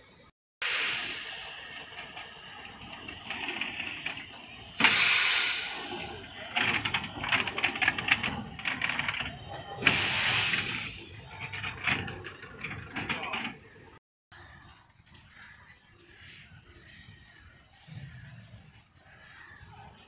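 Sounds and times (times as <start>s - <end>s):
steam locomotive hissing steam: 0.6s - 12.2s.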